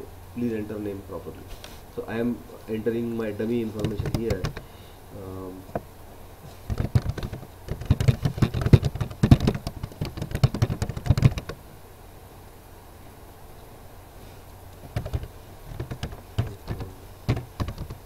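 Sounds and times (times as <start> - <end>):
typing on computer keyboard: 3.8 - 4.6, 6.7 - 11.6, 14.8 - 18.0.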